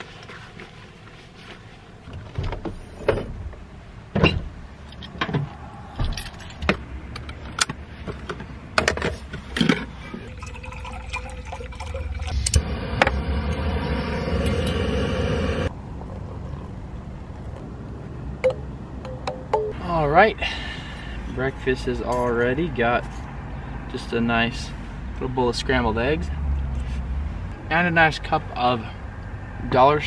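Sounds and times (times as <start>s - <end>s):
steady rushing noise: 12.3s - 15.8s.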